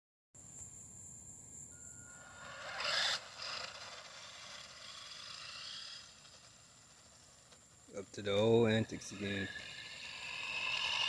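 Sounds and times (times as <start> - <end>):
thin high steady tone: 0.6 - 11.0
rc car motor whining: 2.1 - 11.0
tyres rasping on concrete: 8.5 - 11.0.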